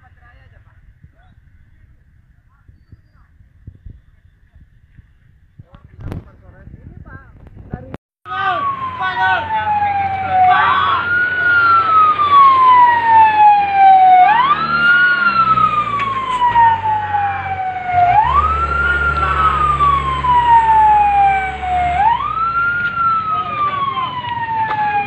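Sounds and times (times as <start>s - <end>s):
fire truck siren wailing: 8.3s - 25.0s.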